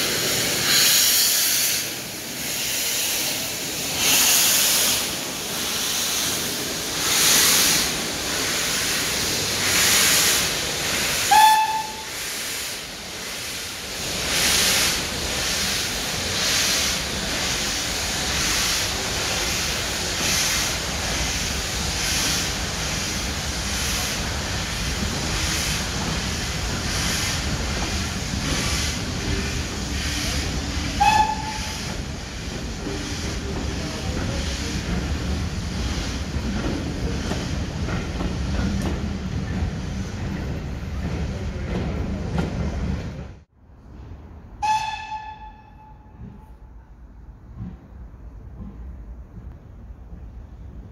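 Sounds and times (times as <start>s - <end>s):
steam locomotive exhaust chuffs: 0.0s - 42.0s
short high whistle notes: 11.3s - 12.1s.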